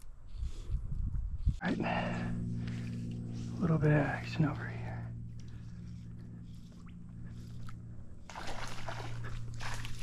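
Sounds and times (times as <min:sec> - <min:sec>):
steady low hum: 0:00.0 - 0:10.0
fish splashing at water surface: 0:08.2 - 0:10.0.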